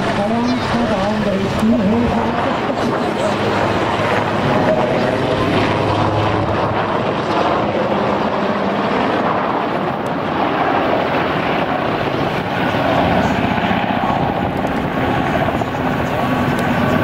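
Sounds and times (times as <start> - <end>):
helicopter loud rush: 0.0 - 17.0
helicopter rotor chop: 0.0 - 17.0.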